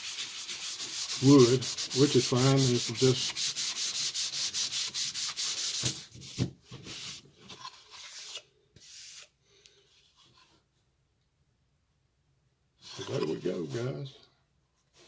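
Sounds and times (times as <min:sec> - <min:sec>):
sandpaper rubbing on wood: 0:00.0 - 0:06.0.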